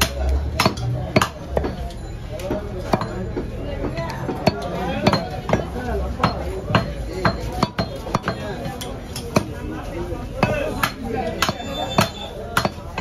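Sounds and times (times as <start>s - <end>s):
cleaver chopping on wooden block: 0.0s - 1.8s, 10.4s - 13.0s
crowd chattering: 0.0s - 13.0s.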